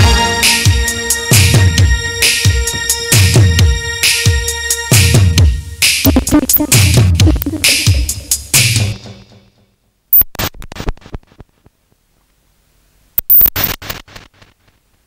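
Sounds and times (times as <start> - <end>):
rapid percussion hits: 0.0 - 9.3
song backing music: 0.0 - 9.6.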